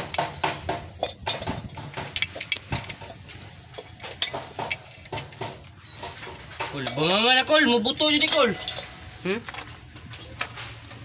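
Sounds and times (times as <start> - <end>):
wrench clinking on metal nuts: 6.4 - 10.6.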